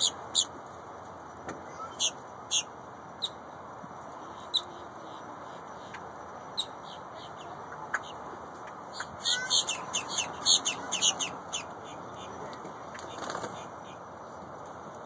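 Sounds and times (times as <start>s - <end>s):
grackles chattering calls: 0.0s - 0.5s, 1.8s - 3.4s, 4.2s - 14.0s
steady background noise: 0.0s - 15.0s.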